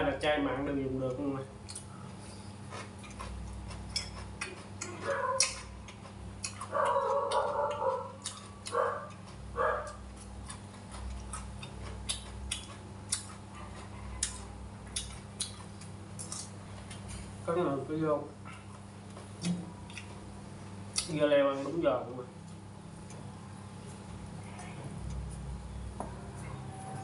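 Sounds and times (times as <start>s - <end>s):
steady low hum: 0.0s - 27.0s
man chewing food: 1.6s - 17.4s, 18.4s - 21.1s, 22.4s - 27.0s.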